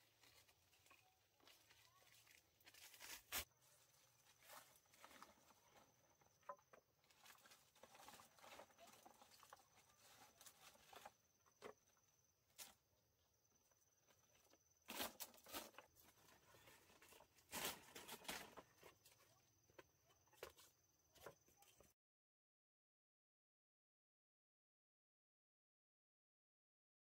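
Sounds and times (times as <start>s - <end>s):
leaf thatch rustling: 0.0s - 6.2s, 14.9s - 19.3s.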